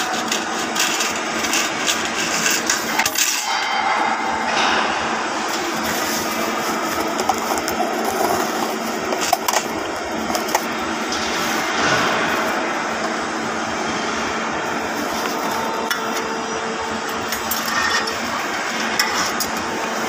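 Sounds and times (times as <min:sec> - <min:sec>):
fabrication shop background noise: 0:00.0 - 0:20.0.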